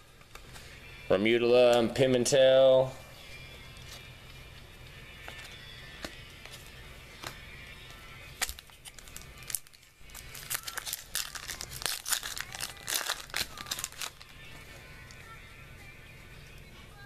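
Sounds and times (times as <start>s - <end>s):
foil wrapper tearing and crinkling: 8.3s - 14.4s.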